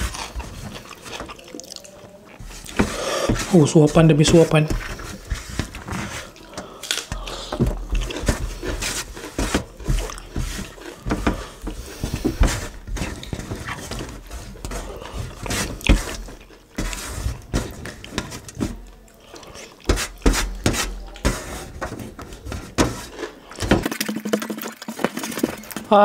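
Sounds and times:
chewing: 0:00.0 - 0:03.7, 0:04.9 - 0:20.2
fingers pushing rice on metal tray: 0:02.4 - 0:23.6
breathing: 0:02.8 - 0:03.4, 0:06.0 - 0:07.7.

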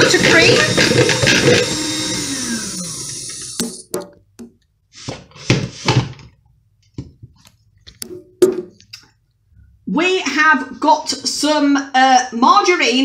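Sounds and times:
hand mixer motor winding down: 0:00.0 - 0:03.8.

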